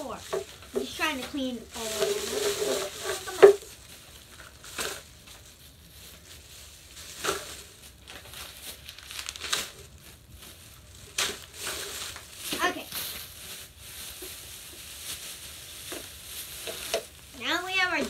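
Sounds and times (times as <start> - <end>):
plastic bag rustling: 0.0 - 18.0.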